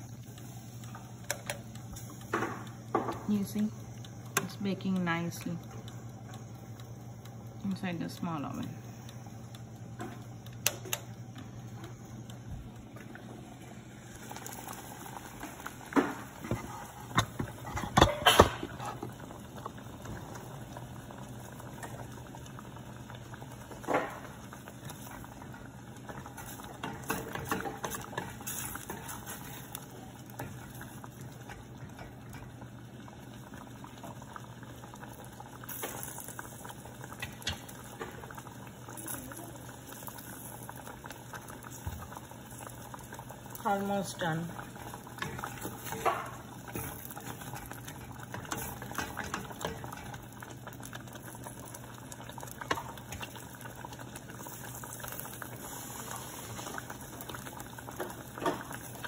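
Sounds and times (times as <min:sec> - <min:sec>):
steady low hum: 0:00.0 - 0:39.6
sauce simmering and bubbling: 0:05.3 - 0:59.0.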